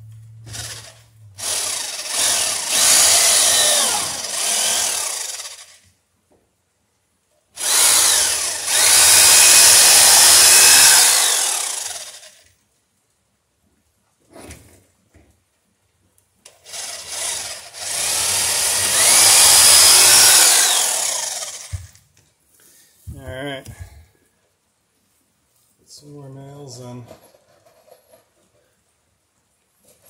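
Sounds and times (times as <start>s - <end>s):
electric drill boring into wood: 0.4s - 5.9s, 7.6s - 12.5s, 16.5s - 22.0s.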